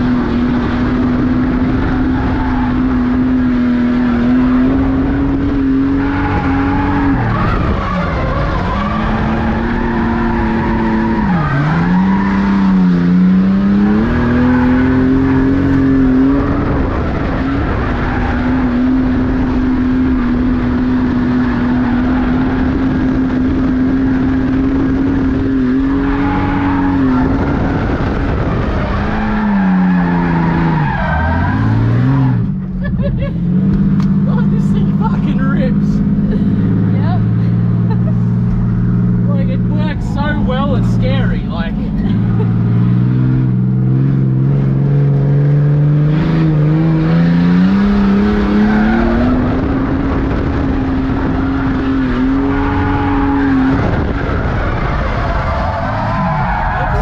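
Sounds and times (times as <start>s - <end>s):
car engine at high revs: 0.0s - 57.0s
tyres squealing: 54.8s - 57.0s.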